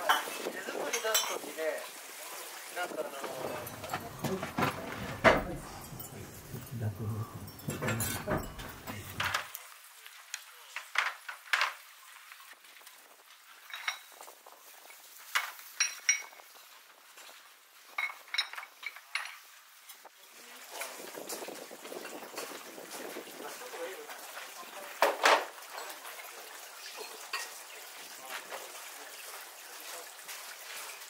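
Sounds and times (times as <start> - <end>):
pottery clinking: 0.0 - 1.4, 3.2 - 9.5, 13.6 - 14.2, 15.8 - 16.4.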